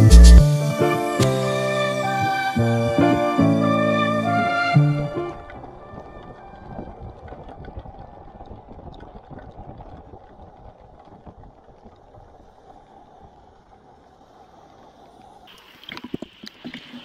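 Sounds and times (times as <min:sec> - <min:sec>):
wind buffeting microphone: 0:05.4 - 0:12.3.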